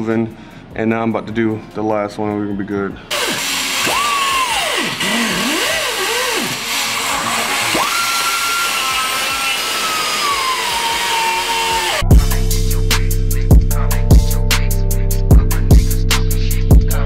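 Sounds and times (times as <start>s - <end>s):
angle grinder cutting steel pipe: 3.1s - 12.1s.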